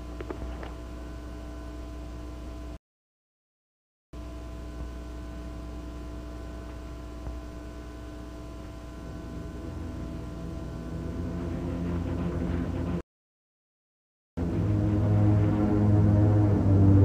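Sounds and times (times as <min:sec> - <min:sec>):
steady hum with tones: 0:00.0 - 0:02.8, 0:04.2 - 0:13.0, 0:14.4 - 0:17.0
low sustained tones: 0:09.0 - 0:13.0, 0:14.4 - 0:17.0.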